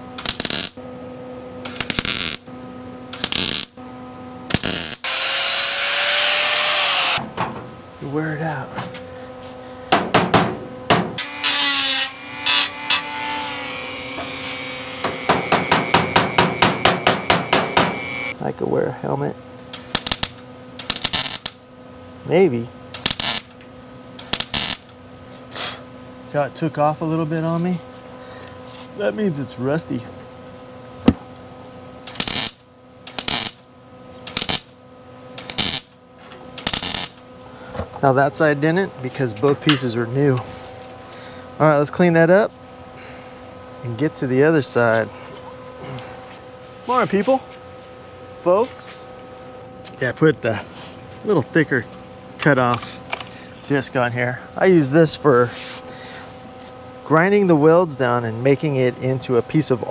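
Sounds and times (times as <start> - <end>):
steady hum: 0.0 - 59.9
welder crackling bursts: 0.2 - 0.8, 1.6 - 2.5, 3.1 - 3.8, 4.5 - 7.2, 19.7 - 21.6, 23.0 - 23.6, 24.2 - 24.9, 32.0 - 33.6, 34.2 - 34.7, 35.4 - 35.9, 36.6 - 37.2
hammer striking sheet steel: 15.0 - 18.0.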